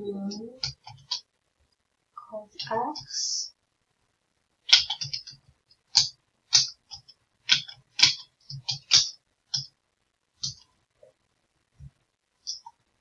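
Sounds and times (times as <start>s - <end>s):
keyboard keystrokes clicking: 4.7s - 5.4s.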